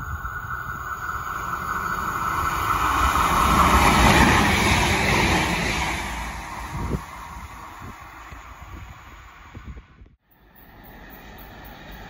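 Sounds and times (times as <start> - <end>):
diesel railcar passing: 0.0 - 12.0.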